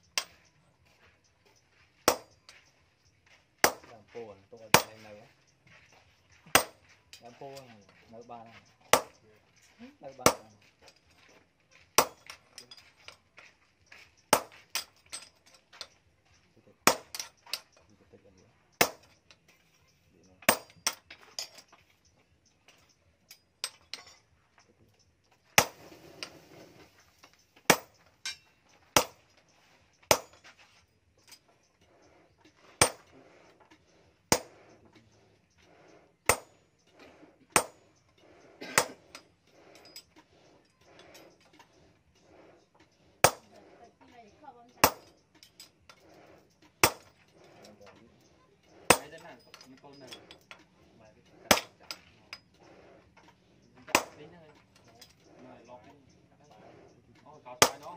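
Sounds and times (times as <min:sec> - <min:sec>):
hammer striking steel punch: 0:02.1 - 0:02.3, 0:03.6 - 0:03.9, 0:06.5 - 0:06.8, 0:08.9 - 0:09.2, 0:10.2 - 0:10.5, 0:14.3 - 0:14.8, 0:16.9 - 0:17.3, 0:18.8 - 0:19.1, 0:25.6 - 0:25.8, 0:29.0 - 0:29.2, 0:30.1 - 0:30.4, 0:34.3 - 0:34.5, 0:37.6 - 0:37.8, 0:43.2 - 0:43.5, 0:44.8 - 0:45.1, 0:46.8 - 0:47.1, 0:48.9 - 0:49.2, 0:51.5 - 0:52.0, 0:53.9 - 0:54.2, 0:57.6 - 0:57.9.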